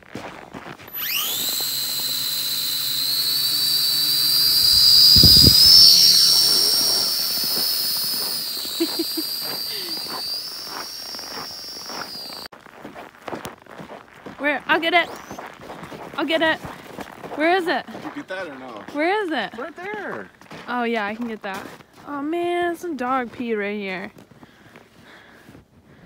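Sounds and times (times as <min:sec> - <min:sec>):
drone propellers whining: 0:00.9 - 0:12.5.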